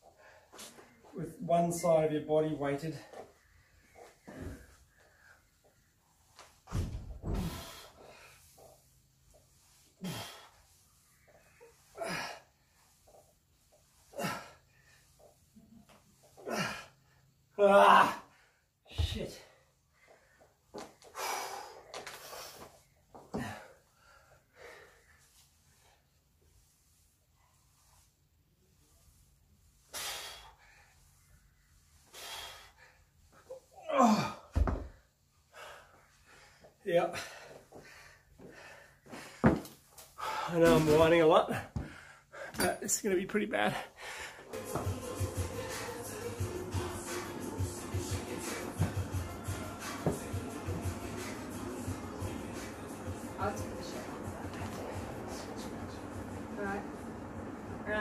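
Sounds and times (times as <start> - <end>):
man groaning: 16.4 - 16.8, 17.6 - 18.3, 33.8 - 34.6.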